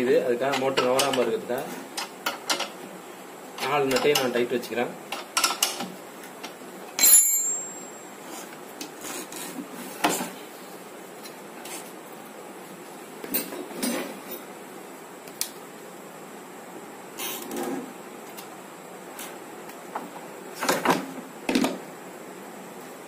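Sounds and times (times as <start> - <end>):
hand tools clinking on metal: 7.0 - 8.0.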